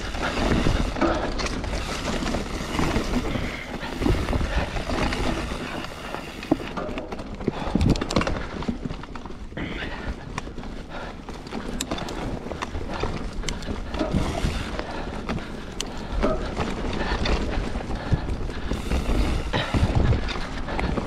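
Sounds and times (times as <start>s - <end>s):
bike rattling clicks: 0.0s - 21.0s
bike tyre noise: 0.0s - 21.0s
wind rumbling on microphone: 11.7s - 21.0s.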